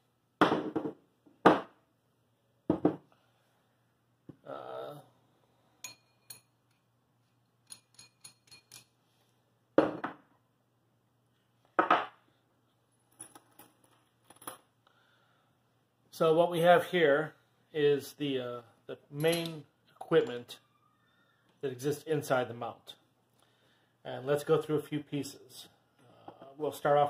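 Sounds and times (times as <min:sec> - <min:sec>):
light metallic clinks: 0:05.8 - 0:06.9, 0:07.6 - 0:09.0.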